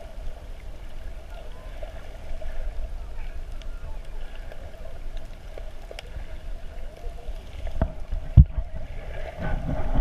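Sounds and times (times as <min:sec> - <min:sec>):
underwater low rumble: 0:00.0 - 0:10.0
faint clicks: 0:03.3 - 0:08.5.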